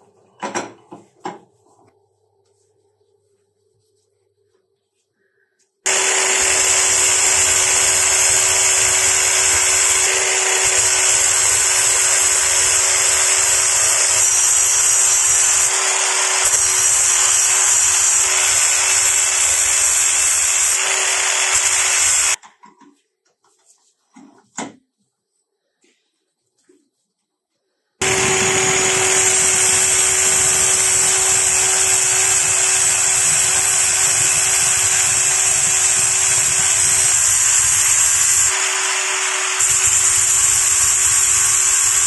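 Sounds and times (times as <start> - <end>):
angle grinder grinding steel: 5.9 - 22.4, 28.0 - 42.0.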